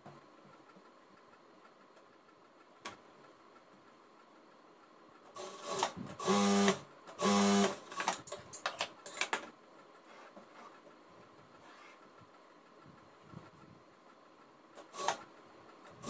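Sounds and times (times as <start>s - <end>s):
sewing machine running: 5.4s - 7.8s, 14.9s - 15.3s.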